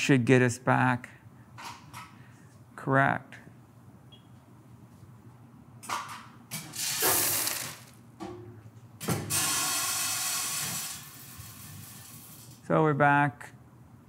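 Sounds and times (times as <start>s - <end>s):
coffee rushing hiss: 6.7s - 8.0s, 9.3s - 12.6s.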